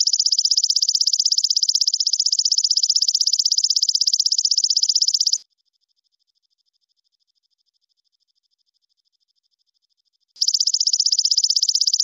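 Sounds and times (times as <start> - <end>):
insect chirring: 0.0 - 5.4, 10.4 - 12.0.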